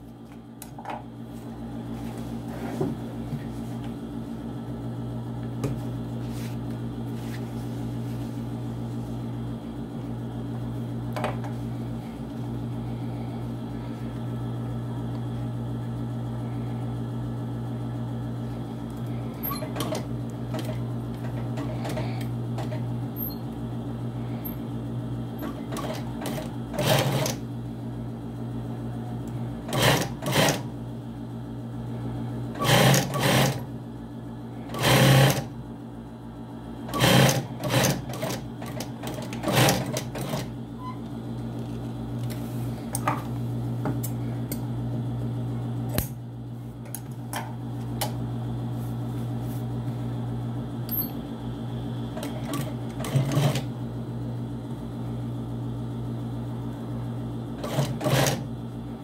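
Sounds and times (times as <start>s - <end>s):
steady low hum: 0.0s - 59.0s
sewing machine stitching: 25.4s - 27.4s, 29.7s - 30.7s, 32.6s - 33.6s, 34.7s - 35.5s, 36.9s - 40.5s, 52.2s - 53.7s, 57.6s - 58.5s.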